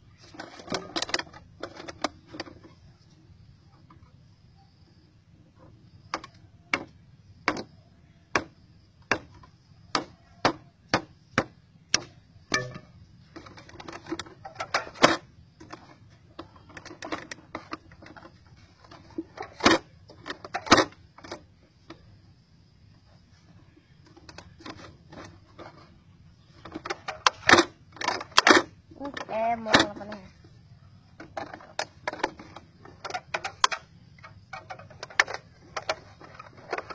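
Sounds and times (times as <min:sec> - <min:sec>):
sharp clicks and knocks on plastic: 0:06.1 - 0:07.7, 0:08.3 - 0:22.0.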